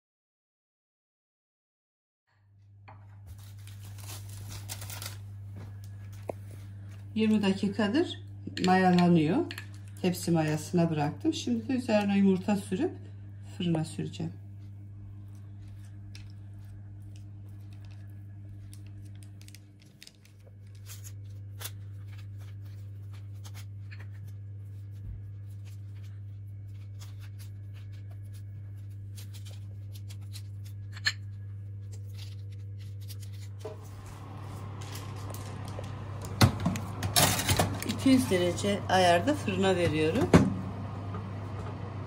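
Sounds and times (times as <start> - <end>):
steady low hum: 2.6 - 42.0
paper rustling: 3.1 - 6.1, 16.5 - 30.8, 31.7 - 35.8.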